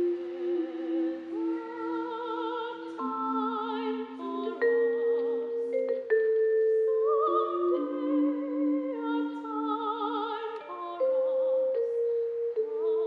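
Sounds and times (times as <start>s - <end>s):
soprano singing with vibrato: 0.0s - 13.0s
vibraphone notes: 2.7s - 13.0s.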